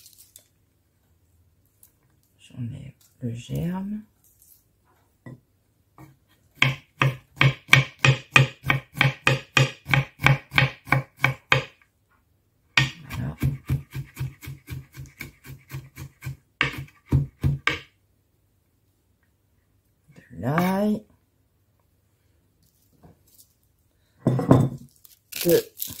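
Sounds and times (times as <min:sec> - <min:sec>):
knife chopping on wooden board: 0:06.6 - 0:11.7, 0:12.8 - 0:17.9.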